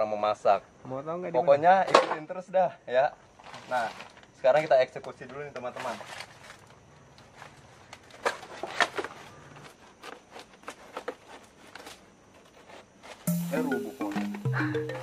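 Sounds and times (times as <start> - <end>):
background music with melody: 13.3 - 15.0.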